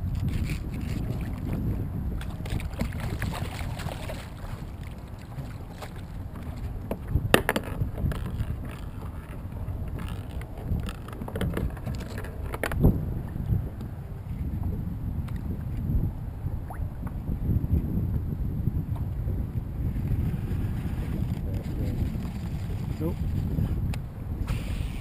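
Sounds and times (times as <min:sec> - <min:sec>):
waves lapping against kayak hull: 0:00.0 - 0:13.0
wind rumbling on microphone: 0:00.0 - 0:25.0.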